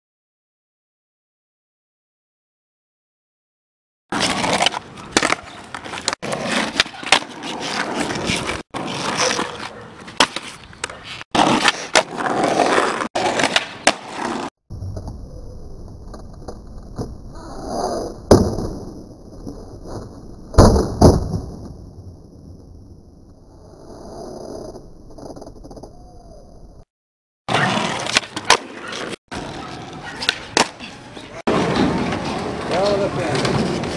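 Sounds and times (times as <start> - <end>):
skateboard wheels rolling: 4.1 - 26.8, 27.5 - 33.9
skateboard clacking on pavement: 4.2 - 14.4.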